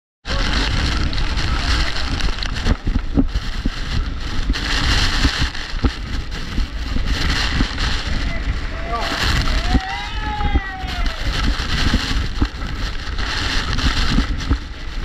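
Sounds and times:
wind buffeting microphone: 0.2 - 15.0
waterfall rushing: 4.2 - 14.3.

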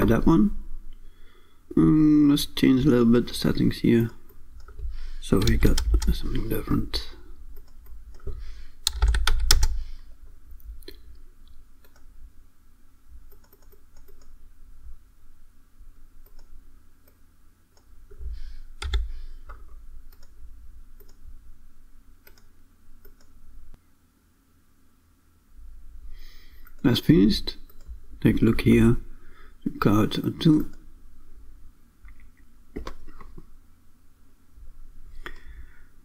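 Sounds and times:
faint steady hum: 0.0 - 36.0
keyboard typing: 4.0 - 6.4, 7.5 - 9.9, 11.8 - 12.1, 13.3 - 14.4, 18.8 - 20.4, 22.2 - 23.4
mouse clicking: 10.6 - 12.1, 13.3 - 14.4, 18.8 - 20.4, 21.0 - 21.2, 22.2 - 23.3.

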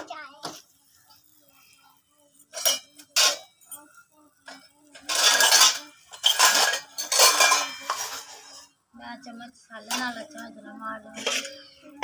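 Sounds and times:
steel utensils clinking: 2.4 - 8.8, 9.7 - 12.0
metal ladle scraping steel pots: 4.9 - 8.8, 9.8 - 12.0.

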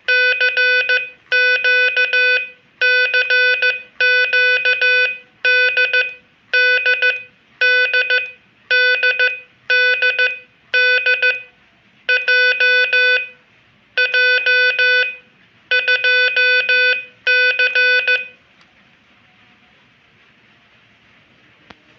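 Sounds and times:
morse code tone: 0.0 - 11.5, 12.1 - 13.4, 14.0 - 18.4.

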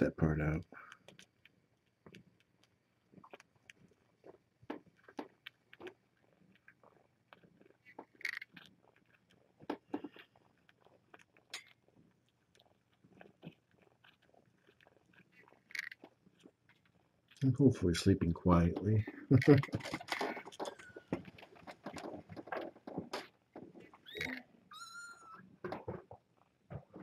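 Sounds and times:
kittens nursing clicks and smacks: 0.0 - 27.0.

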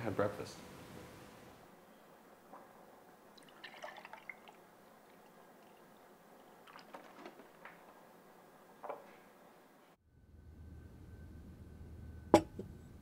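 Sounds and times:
milk splashing into a glass: 3.4 - 4.6.

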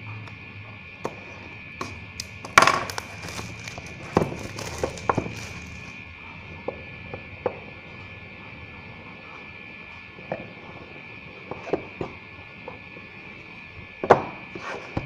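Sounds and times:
plastic film crinkling and tearing: 2.2 - 6.0.

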